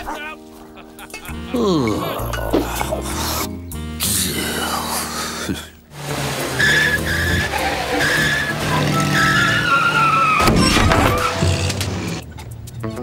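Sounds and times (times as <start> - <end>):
background music: 0.0 - 13.0
tyres squealing in skids: 6.0 - 12.2
cartoon car engines running: 6.0 - 12.4.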